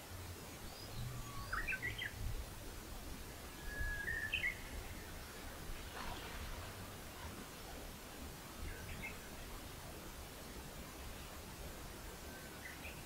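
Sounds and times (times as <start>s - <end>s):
faint low rumble: 0.0s - 12.4s
songbird singing whistled phrases: 0.7s - 2.1s, 3.6s - 5.1s.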